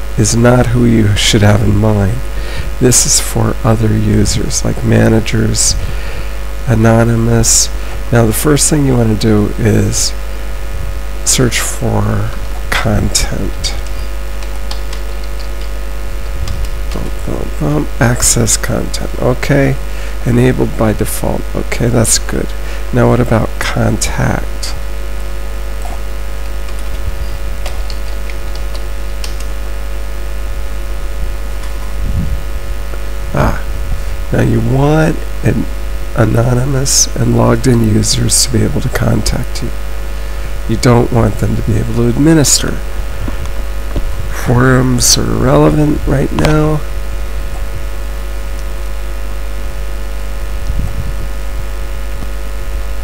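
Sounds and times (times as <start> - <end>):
low electrical hum: 0.0 - 53.0
recording hiss: 0.0 - 53.0
faint clicks: 13.8 - 15.8, 25.8 - 27.0, 27.6 - 29.6.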